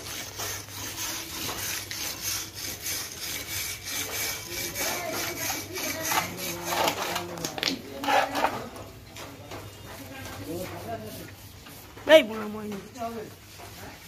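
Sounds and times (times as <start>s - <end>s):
steel bar scraping spring coils: 0.0s - 7.4s.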